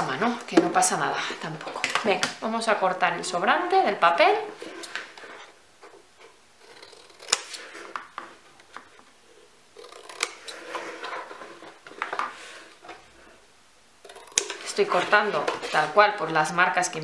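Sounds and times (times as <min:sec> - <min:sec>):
paper rustling: 0:14.4 - 0:16.2.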